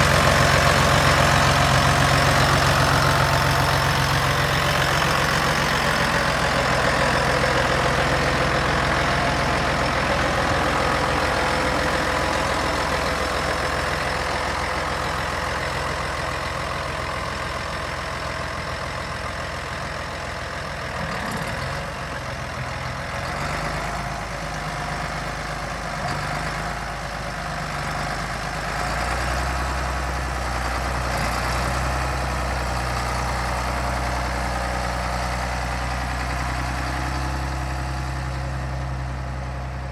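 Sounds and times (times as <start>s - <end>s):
tractor diesel engine idling: 0.0s - 39.9s.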